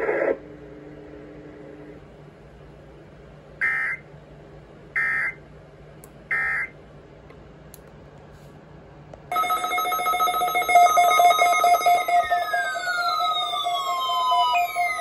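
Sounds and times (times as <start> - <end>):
layered alarm beeping: 9.3 - 15.0.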